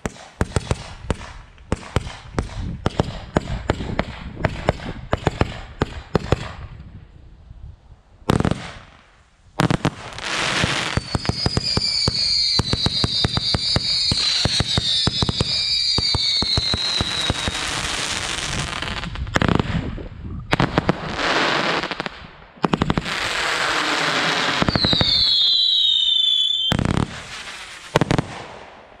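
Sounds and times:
firework crackling: 0:08.4 - 0:19.9, 0:20.5 - 0:28.8
firework whistling: 0:09.8 - 0:19.1, 0:23.1 - 0:28.6.

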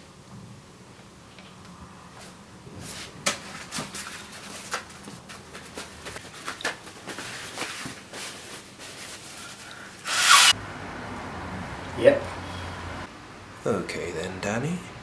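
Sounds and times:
person blowing nose: 0:10.1 - 0:10.5.

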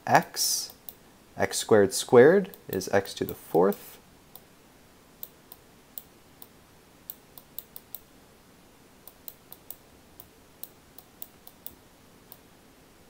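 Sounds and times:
low room hiss: 0:00.0 - 0:13.0
computer pointer clicks: 0:07.1 - 0:08.1.

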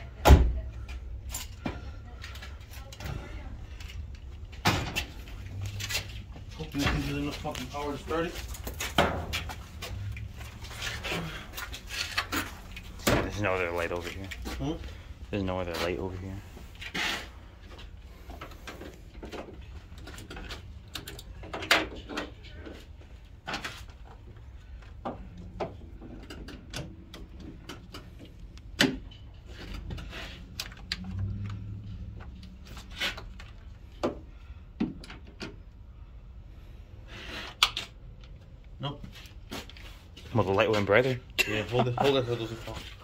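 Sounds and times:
low hum: 0:29.9 - 0:33.7.

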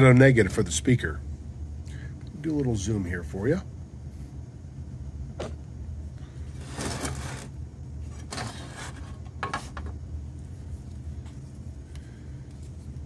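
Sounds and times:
steady low hum: 0:00.0 - 0:13.0
scraping handling noises on workbench: 0:06.5 - 0:10.0.

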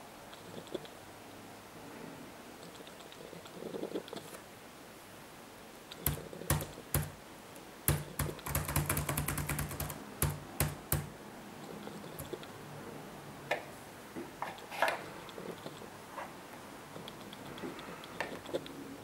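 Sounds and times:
computer keyboard typing: 0:05.9 - 0:07.2, 0:07.9 - 0:11.1, 0:12.0 - 0:12.5.

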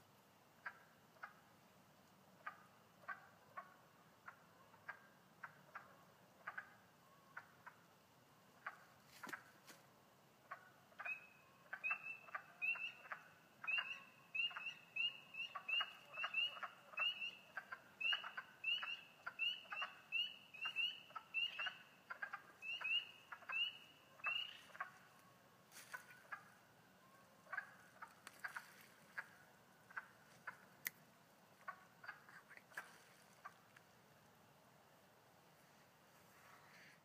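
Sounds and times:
frogs calling: 0:10.4 - 0:25.2.

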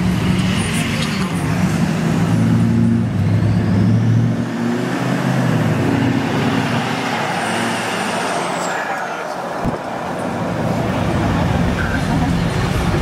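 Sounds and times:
pickup truck engine driving: 0:09.5 - 0:13.0.

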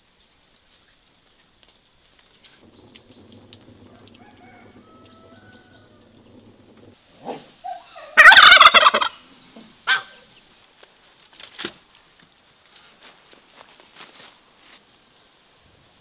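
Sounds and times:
turkey gobbling: 0:02.6 - 0:06.9, 0:08.0 - 0:09.2.

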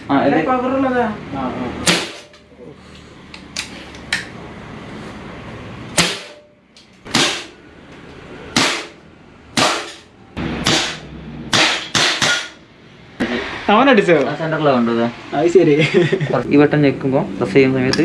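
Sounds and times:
air gun shots: 0:01.8 - 0:02.4, 0:05.9 - 0:07.6, 0:08.5 - 0:12.6.

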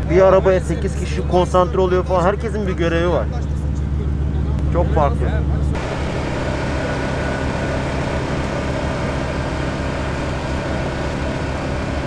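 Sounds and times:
car engine drone: 0:00.0 - 0:12.0.

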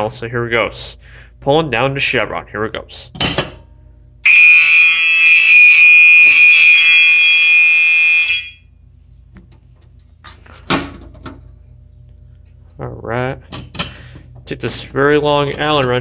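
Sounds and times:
fire alarm horn tone: 0:04.2 - 0:08.8.

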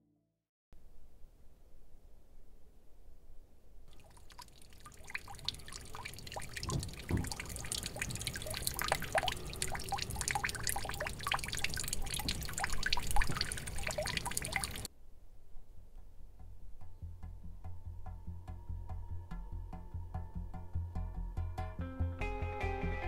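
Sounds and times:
fountain water splashing into trough: 0:03.9 - 0:14.9.

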